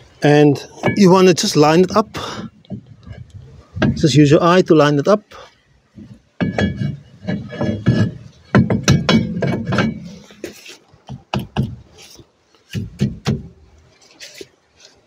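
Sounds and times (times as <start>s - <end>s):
brake drum knocking and scraping: 0.6s - 4.2s, 5.9s - 13.7s.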